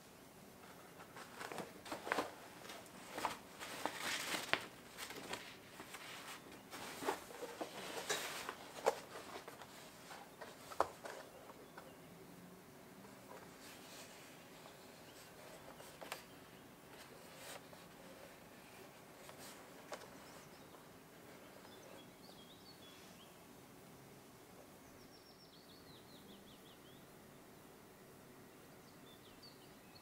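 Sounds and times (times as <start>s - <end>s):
fabric bag rustling: 1.0s - 10.9s.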